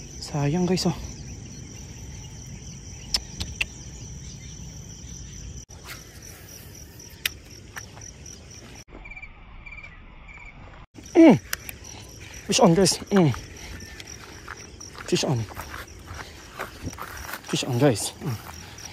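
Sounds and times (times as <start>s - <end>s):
crickets trilling: 0.0s - 18.9s
sharp clicks: 11.4s - 11.8s.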